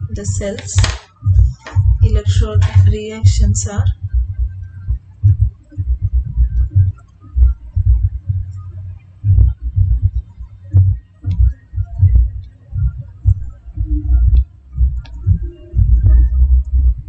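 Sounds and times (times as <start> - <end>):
stylus thumping on tablet: 0.2 - 3.4.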